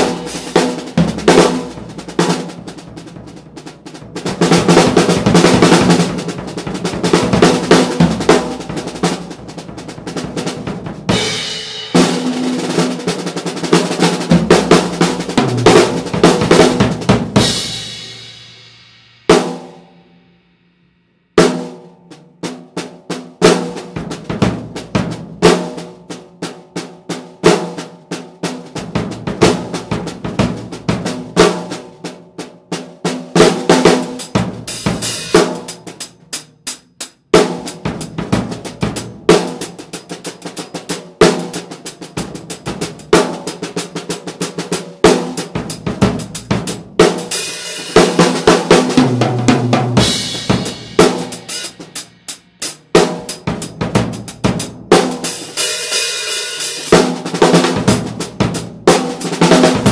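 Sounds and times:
cymbals: 0:00.0 - 0:02.7, 0:11.1 - 0:13.1, 0:13.8 - 0:20.7, 0:33.9 - 0:36.5, 0:45.0 - 0:59.9
snare drum strokes: 0:00.0 - 0:03.1, 0:04.2 - 0:19.7, 0:33.1 - 0:36.5, 0:37.3 - 0:59.9
bass drum: 0:00.0 - 0:12.3, 0:14.0 - 0:18.6, 0:37.4 - 0:39.8, 0:45.4 - 0:55.2, 0:57.0 - 0:59.9.

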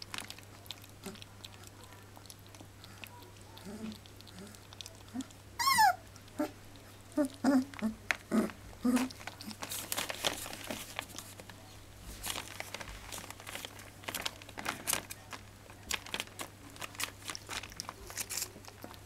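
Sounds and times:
newspaper crinkling under paws: 0:07.8 - 0:19.0.

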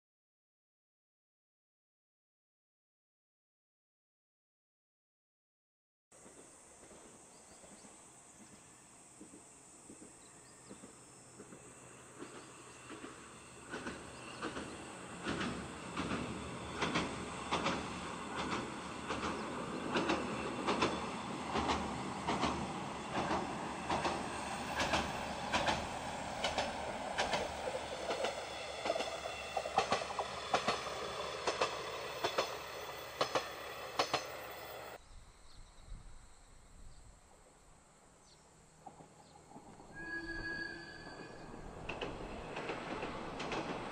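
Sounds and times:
train rumbling over bridge: 0:06.2 - 0:35.0, 0:38.4 - 0:43.9
wheels clacking over rail joints: 0:09.2 - 0:35.0, 0:41.6 - 0:43.9.

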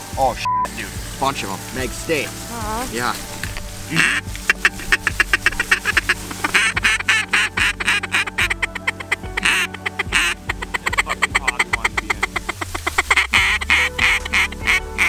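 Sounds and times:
duck calls quacking: 0:03.9 - 0:15.0.

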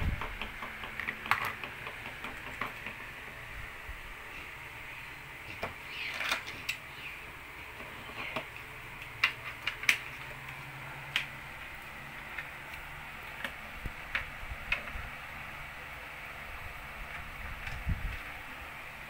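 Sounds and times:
faint steady hum: 0:00.0 - 0:19.0
plastic toy bricks clicking: 0:00.1 - 0:03.1.

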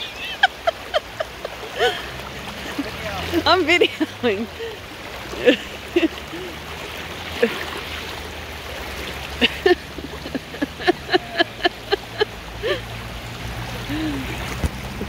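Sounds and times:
flood water rushing: 0:00.0 - 0:15.0.

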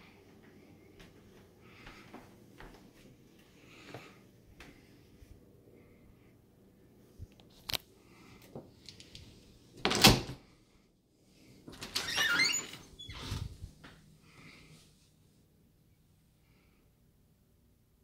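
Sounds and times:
door squeaking and scraping: 0:11.8 - 0:13.5.

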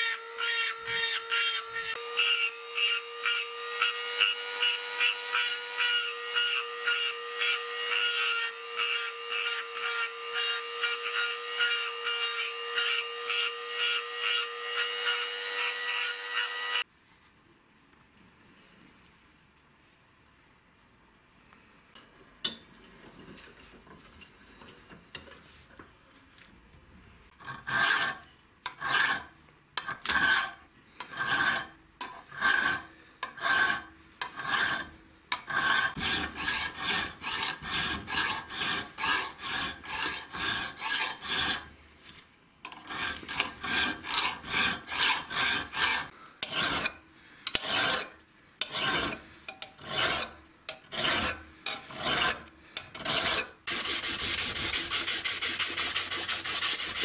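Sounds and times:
file stroking across steel tube: 0:27.4 - 0:41.8, 0:42.7 - 0:57.0.

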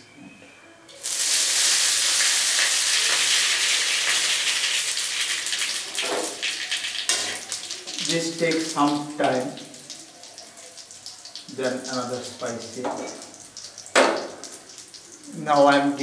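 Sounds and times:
spices sizzling in hot oil: 0:00.9 - 0:16.0.

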